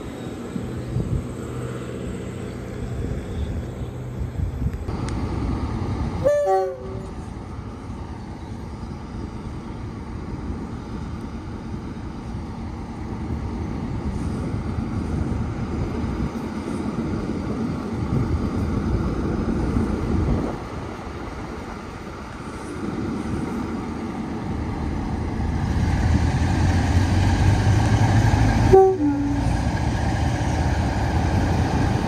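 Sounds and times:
diesel locomotive engine rumbling: 0.0s - 32.0s
two-note train horn blast: 6.2s - 7.2s, 28.7s - 29.5s.

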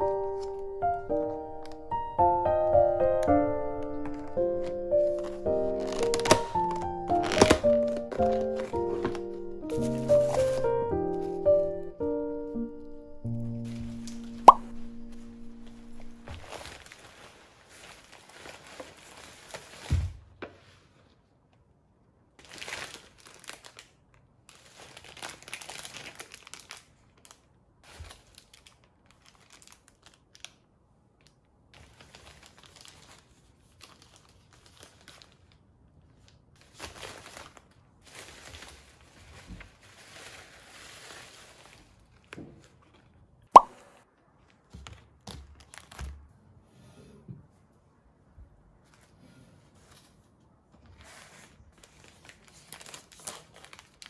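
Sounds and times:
plastic bag crinkling: 0.0s - 2.3s, 3.4s - 11.7s, 12.8s - 19.9s, 22.4s - 30.6s, 31.2s - 35.6s, 36.2s - 42.4s, 51.7s - 54.0s.

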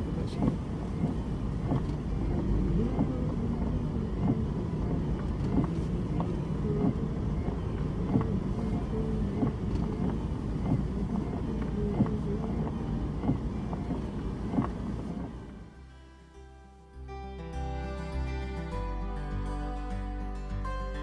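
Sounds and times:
engine and tyre rumble: 0.0s - 18.8s
faint ticks: 0.3s - 15.4s.

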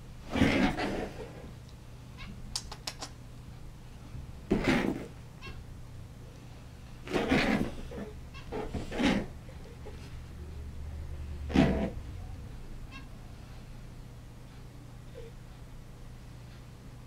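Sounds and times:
rabbit growling: 0.3s - 1.5s, 7.0s - 10.1s, 10.7s - 13.1s.

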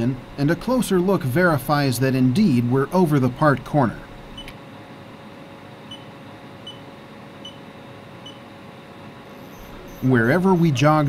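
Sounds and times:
machine hum and hiss: 0.0s - 11.0s.

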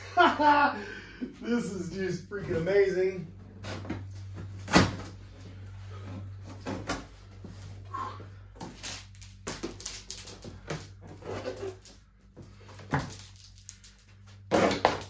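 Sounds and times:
cardboard rustling and scraping: 8.6s - 12.0s.

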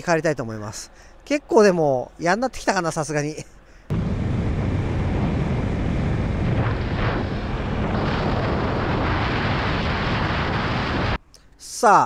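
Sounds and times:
wind rush over microphone: 3.9s - 11.2s.

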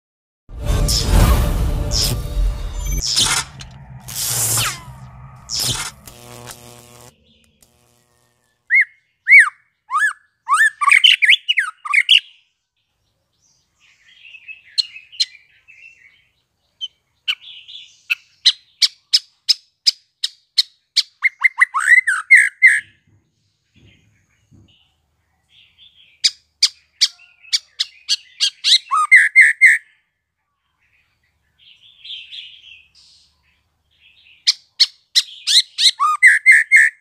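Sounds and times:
bird singing whistles and chatter: 34.5s - 37.0s.

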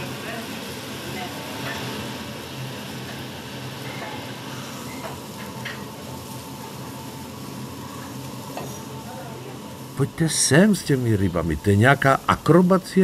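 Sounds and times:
seafood sizzling on a grill: 0.0s - 13.0s.

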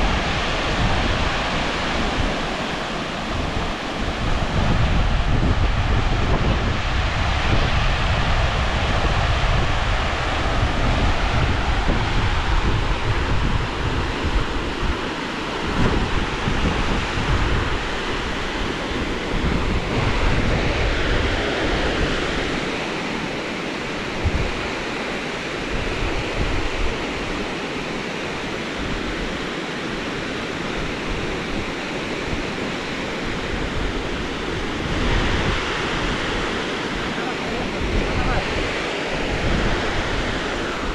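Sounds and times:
wind rumbling on microphone: 0.0s - 40.9s.

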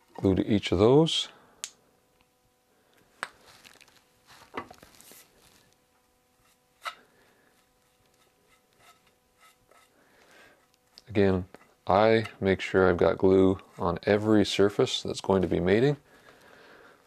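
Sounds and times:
brush dabbing glue: 6.4s - 10.0s.

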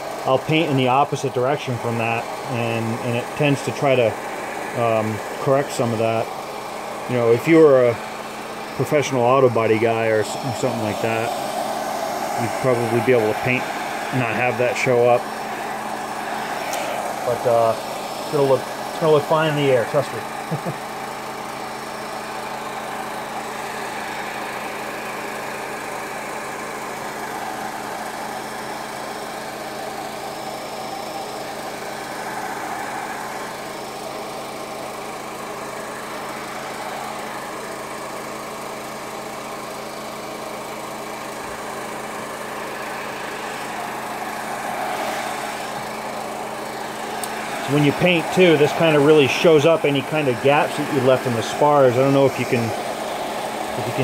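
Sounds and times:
air compressor hum: 0.0s - 54.0s
airbrush spraying hiss: 1.9s - 20.7s, 41.2s - 54.0s.

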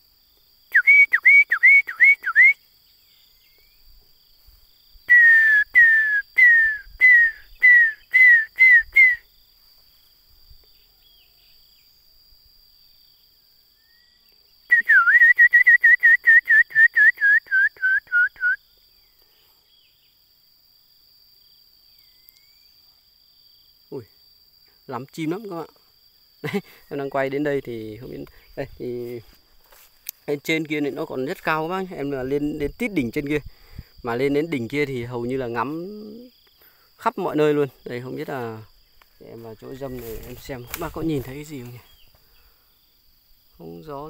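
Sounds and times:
high insect drone: 0.0s - 44.0s
songbird whistling: 0.7s - 3.8s, 5.1s - 9.3s, 13.8s - 19.1s, 21.9s - 22.8s.

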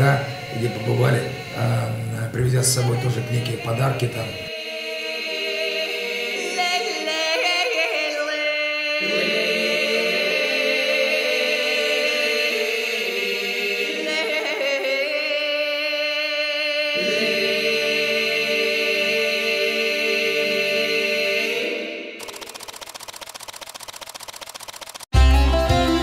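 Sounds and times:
unaccompanied choir singing: 0.0s - 22.2s.

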